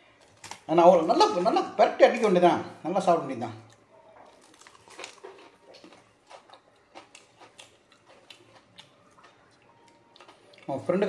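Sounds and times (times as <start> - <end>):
man chewing food: 3.6 - 10.9.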